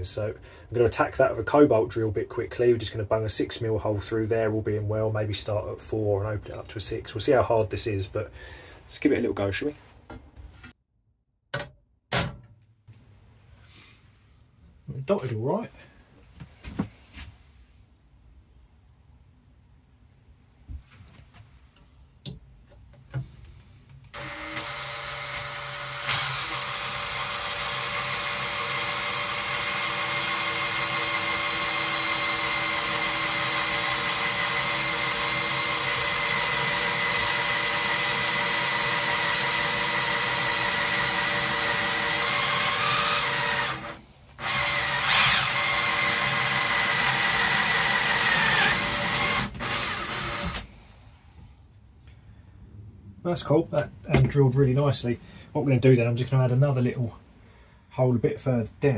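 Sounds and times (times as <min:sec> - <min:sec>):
cordless drill boring through steel: 0:24.1 - 0:50.7.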